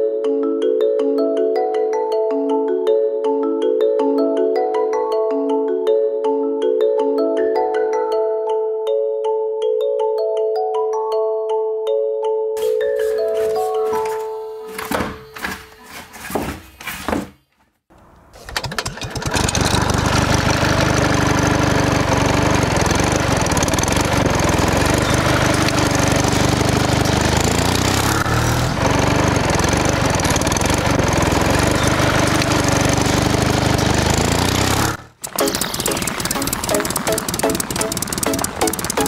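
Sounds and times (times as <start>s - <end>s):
motor running loudly: 19.0s - 39.0s.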